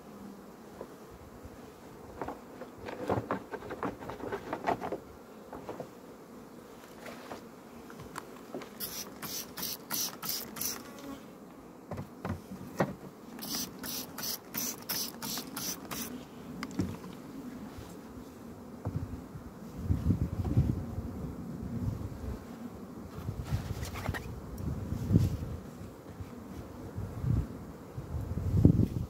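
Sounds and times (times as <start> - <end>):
honeybees buzzing: 0.0 - 28.8
sharp high hissing strokes: 8.8 - 10.9, 13.4 - 16.2
wooden hive frames knocking: 11.9 - 13.1.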